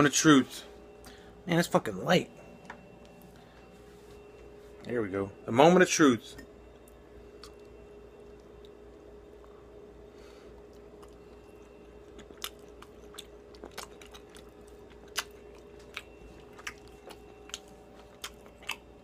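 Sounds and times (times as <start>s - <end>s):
steady hum: 0.0s - 19.0s
person chewing: 7.4s - 8.8s, 10.5s - 19.0s.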